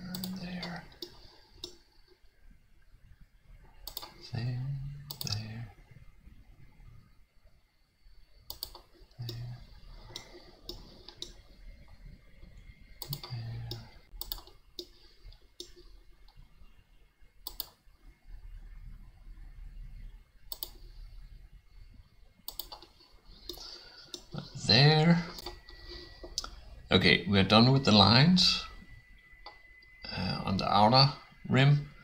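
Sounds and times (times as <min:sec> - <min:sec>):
computer mouse clicks: 0:00.0 - 0:01.8, 0:03.8 - 0:04.2, 0:05.1 - 0:05.6, 0:08.5 - 0:09.5, 0:10.1 - 0:12.0, 0:12.6 - 0:16.4, 0:17.4 - 0:17.8, 0:20.5 - 0:20.9, 0:22.4 - 0:24.3.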